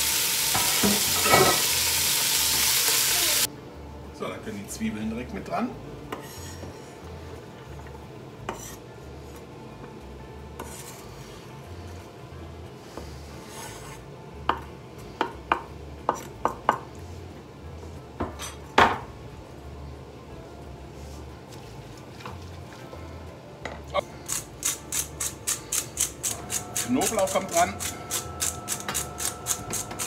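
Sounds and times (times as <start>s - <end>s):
knife scraping cutting board: 8.5s - 8.8s, 10.6s - 11.4s, 13.3s - 14.0s.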